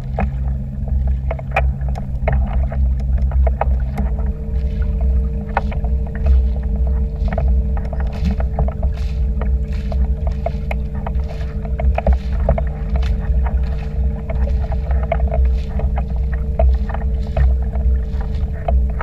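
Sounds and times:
boat motor rumbling: 0:00.0 - 0:19.0
water slapping against hull: 0:00.0 - 0:19.0.

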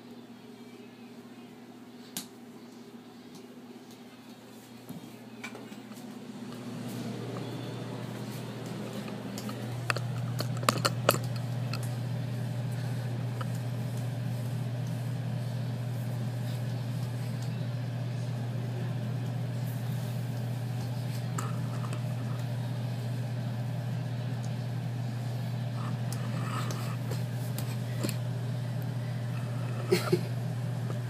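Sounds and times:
low machine hum: 0:00.0 - 0:31.0.

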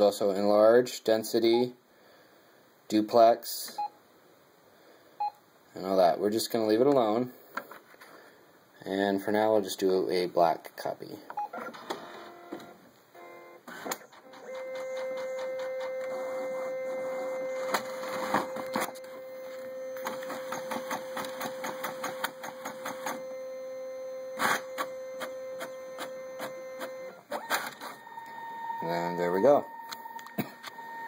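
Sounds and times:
printer mechanical whine: 0:11.5 - 0:31.0
paper feeding out whirr: 0:13.7 - 0:18.9, 0:20.0 - 0:23.2
printer clicks and ticks: 0:20.0 - 0:23.2.

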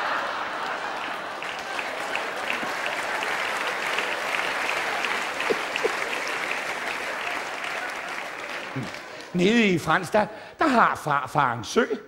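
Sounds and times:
audience laughter: 0:00.0 - 0:07.1
audience applauding: 0:00.0 - 0:09.5.

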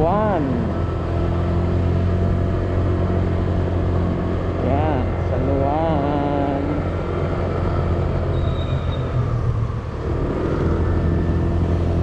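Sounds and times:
road and air rush: 0:00.0 - 0:12.0.

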